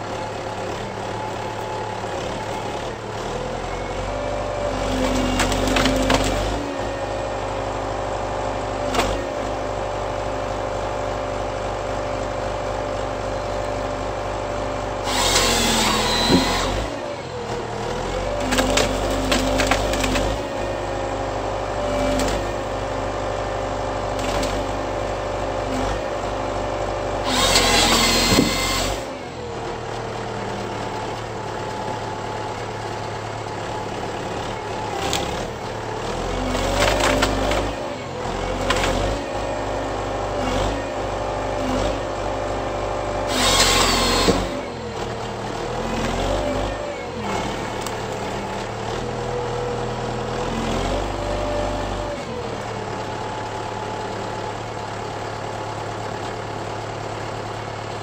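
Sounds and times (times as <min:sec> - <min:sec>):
tractor engine and hydraulics: 0:00.0 - 0:58.0
branches snapping and cracking: 0:05.0 - 0:06.5, 0:18.4 - 0:20.4, 0:36.5 - 0:37.7
chain saw cutting: 0:15.0 - 0:17.2, 0:27.2 - 0:29.2, 0:43.2 - 0:44.9.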